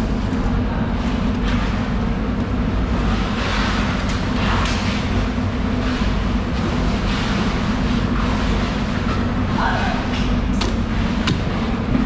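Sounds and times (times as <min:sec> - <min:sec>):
low machine drone: 0:00.0 - 0:12.0.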